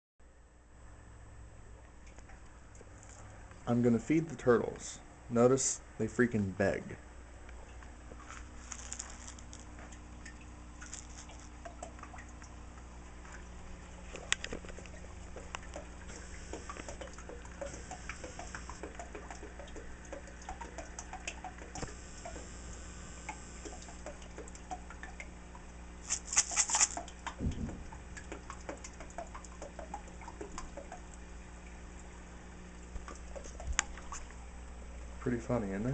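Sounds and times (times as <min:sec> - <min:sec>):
steady low hum: 0:00.2 - 0:35.9
turtles splashing in water: 0:26.0 - 0:31.0.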